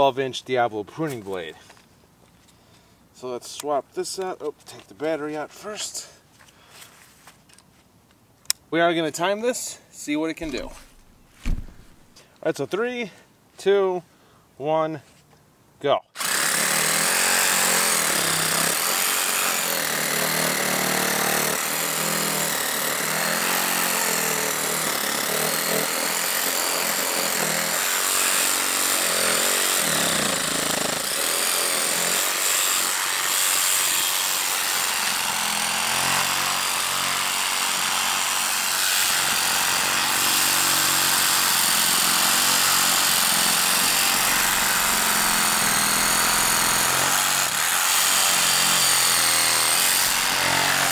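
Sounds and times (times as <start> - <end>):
reciprocating saw cutting log: 16.2 - 50.9.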